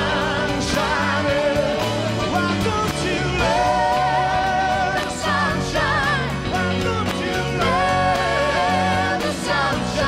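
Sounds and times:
bass: 0:00.0 - 0:10.0
drums: 0:00.0 - 0:10.0
male vocal group singing: 0:00.0 - 0:10.0.

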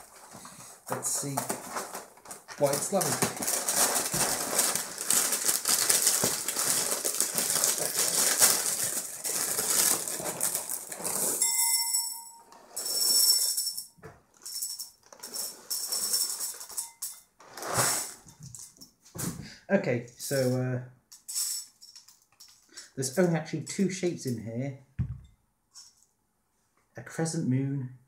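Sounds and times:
plastic bag crinkling: 0:00.0 - 0:11.4
cereal pouring into a bowl: 0:02.6 - 0:11.4.

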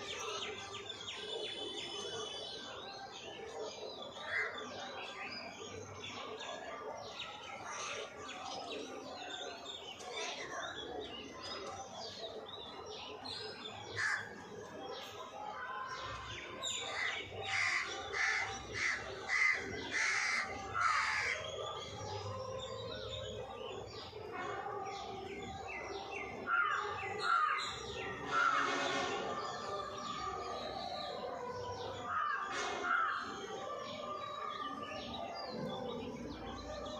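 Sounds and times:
birds calling and chirping: 0:00.0 - 0:36.9.

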